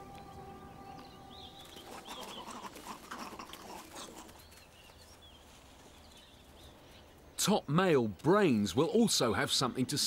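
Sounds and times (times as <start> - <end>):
small birds chirping: 0.0 - 9.9.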